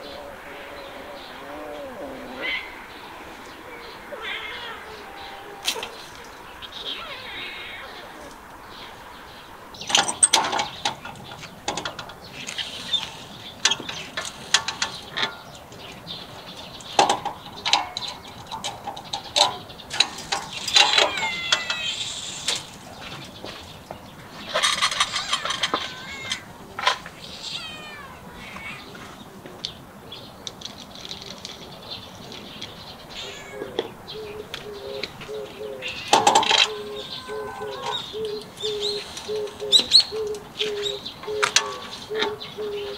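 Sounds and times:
cat mewing: 4.1 - 6.0, 6.8 - 8.4, 20.9 - 22.6, 24.6 - 29.1, 33.2 - 34.0, 35.8 - 38.1.

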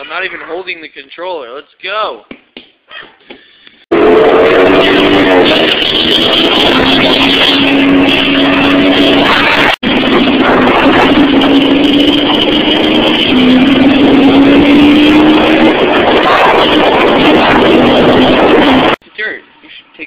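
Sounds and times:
dirt bike engine running: 3.9 - 19.0
wind noise on microphone: 3.9 - 19.0.

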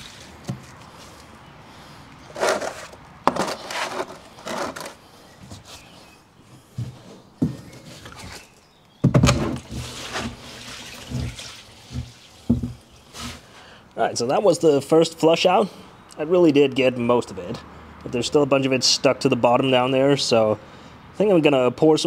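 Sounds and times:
gasoline sloshing in plastic tank: 9.2 - 13.6.

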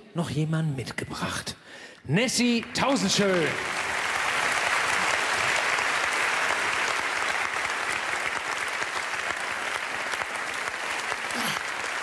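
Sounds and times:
audience applauding: 2.6 - 12.0.

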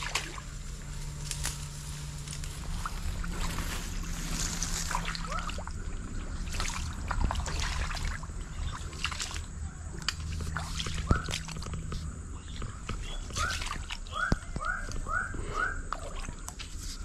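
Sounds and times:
trickling water: 0.0 - 0.7, 2.6 - 17.0
footsteps crunching on dry fronds: 0.0 - 5.7.

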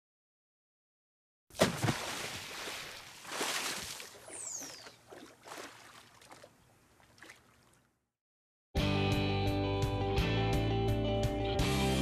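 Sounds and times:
water splashes and whooshes: 1.6 - 7.8.

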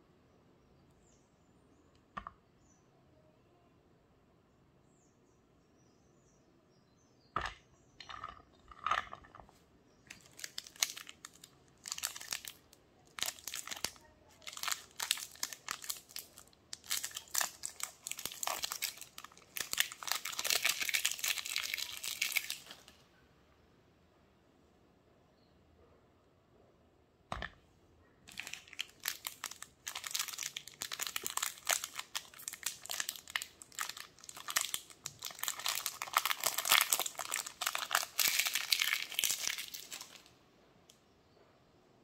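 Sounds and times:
wrapper crinkling and tearing: 10.1 - 23.0, 28.3 - 40.3.

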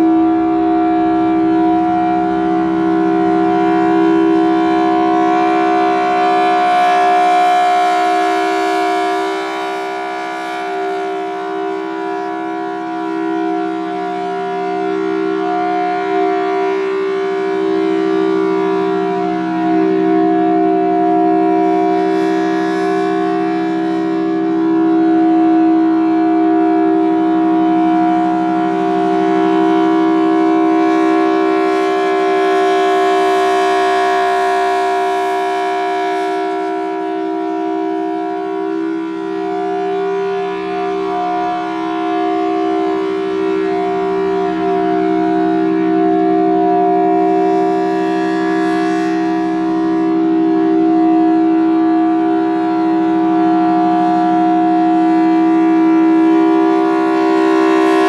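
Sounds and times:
warning siren steady tone: 0.0 - 58.0.

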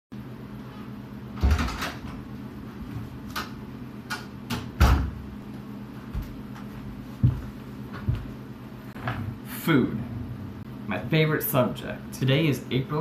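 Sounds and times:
door shutting with a thud: 1.4 - 2.0, 4.5 - 5.2
heavy door thump: 4.8 - 5.2
low hum: 5.2 - 12.1.

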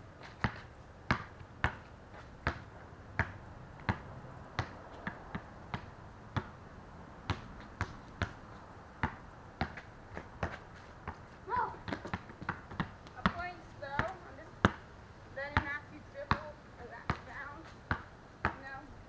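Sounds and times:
basketball bouncing on concrete: 0.2 - 6.6, 7.2 - 8.4, 9.0 - 18.9.

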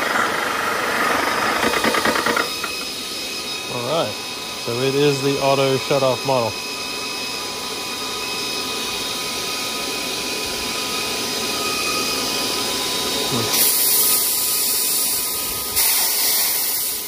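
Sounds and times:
air compressor whirring: 0.0 - 17.0
compressed air hissing: 13.5 - 17.0.

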